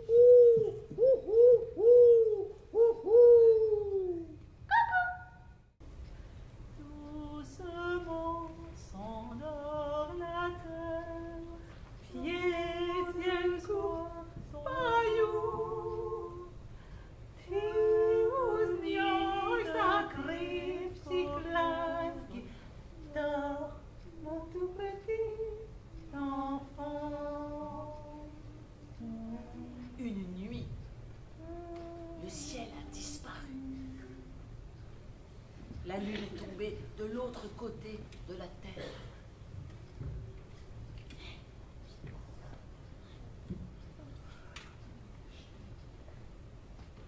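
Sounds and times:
woman singing unaccompanied: 6.8s - 16.7s, 17.4s - 34.5s.

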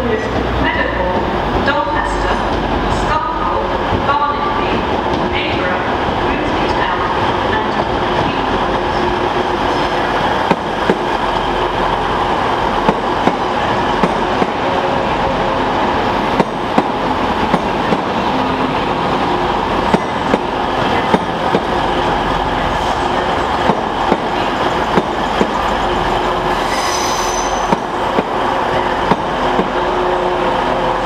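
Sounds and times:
diesel train passing: 0.0s - 31.0s.

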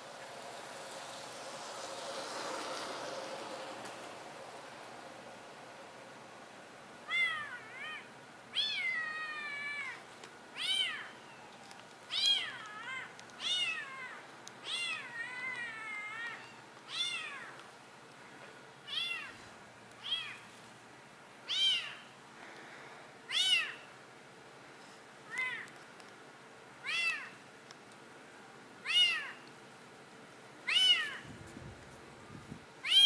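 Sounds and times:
cat meowing: 7.0s - 10.0s, 10.6s - 17.6s, 18.9s - 19.4s, 21.5s - 22.0s, 23.3s - 23.8s, 26.8s - 27.4s, 28.8s - 29.4s, 30.7s - 31.2s.

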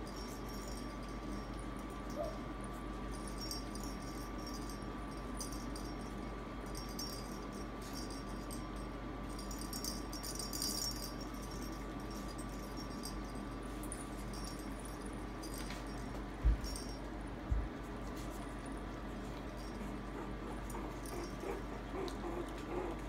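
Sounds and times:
jingle-ball toys rattling: 0.0s - 2.3s, 3.1s - 17.0s, 20.7s - 21.6s
steady low hum: 0.0s - 23.0s.

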